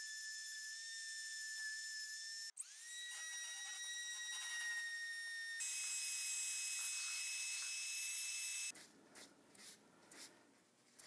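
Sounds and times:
rotary tool grinding whine: 0.0 - 8.7.

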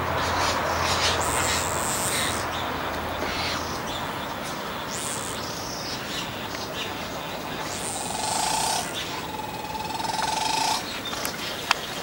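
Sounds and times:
birds chirping: 0.0 - 12.0
steady hiss: 7.0 - 11.0.

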